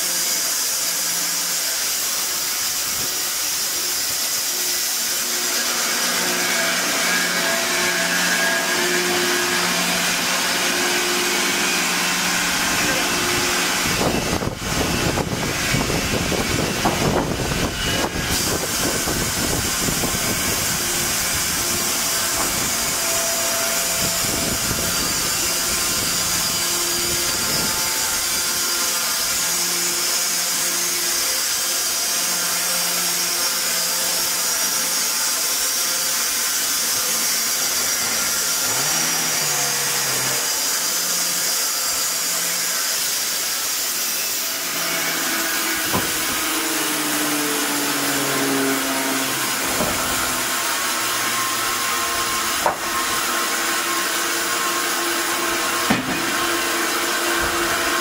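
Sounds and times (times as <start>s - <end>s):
band saw blade cutting log: 0.0s - 58.0s
sharp knocks: 45.8s - 46.3s, 49.7s - 50.3s, 52.6s - 52.9s, 55.9s - 56.3s.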